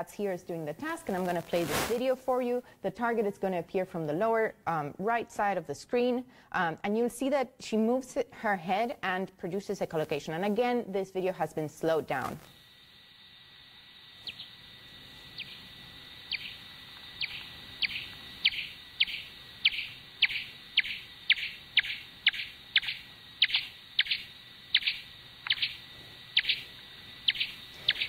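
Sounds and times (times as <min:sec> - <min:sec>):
slowed bat chirps: 0:12.1 - 0:28.0.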